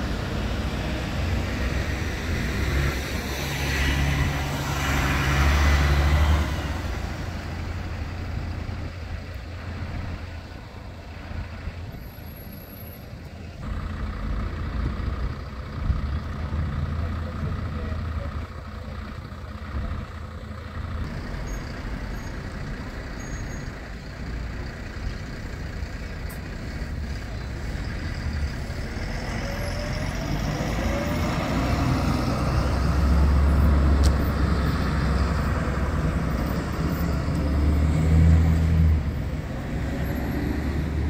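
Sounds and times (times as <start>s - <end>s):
bus and cars driving by: 0.0s - 41.0s
rising engine whine: 27.7s - 41.0s.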